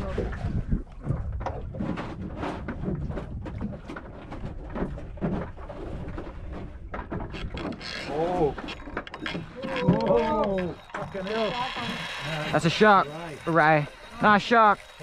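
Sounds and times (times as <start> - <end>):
low wind rumble: 0.0 - 7.8
waves lapping against boat hull: 0.0 - 15.0.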